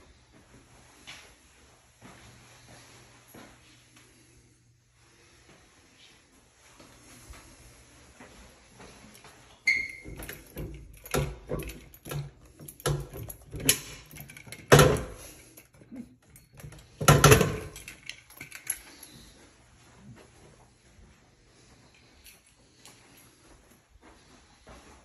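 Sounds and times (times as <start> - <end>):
metal door clicks and clunks: 9.7 - 15.2, 16.5 - 18.0.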